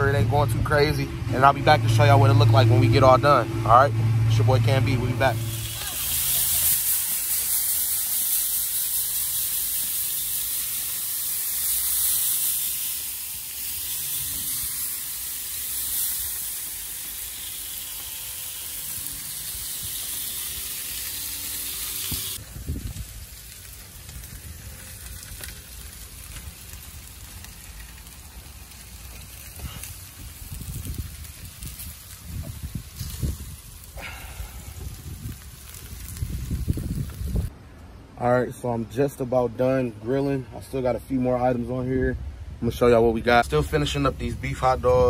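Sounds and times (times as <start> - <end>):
meat sizzling on a grill: 4.2 - 37.5
spray nozzle misting: 5.2 - 22.4.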